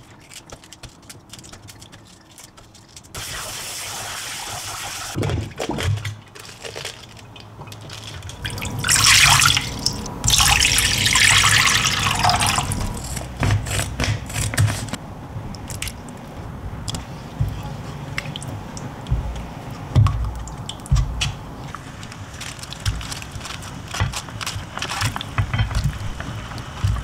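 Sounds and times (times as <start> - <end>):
loud water splashing: 3.2 - 6.1, 8.3 - 13.1.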